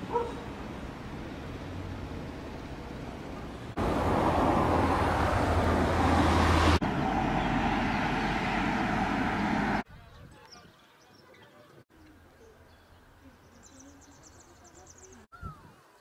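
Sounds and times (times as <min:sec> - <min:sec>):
outdoor background noise: 0:00.0 - 0:16.0.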